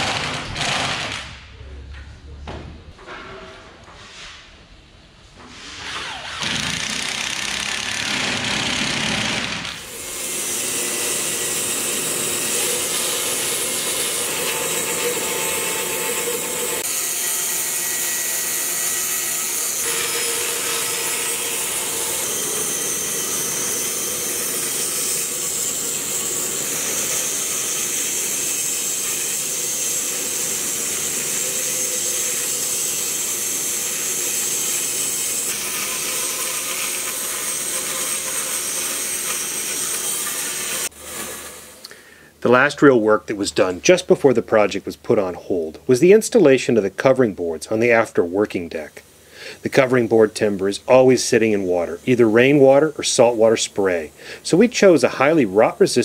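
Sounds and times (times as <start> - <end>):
power drill boring into wood: 0.0 - 1.2, 5.8 - 16.9
bandsaw cutting timber: 5.8 - 41.8.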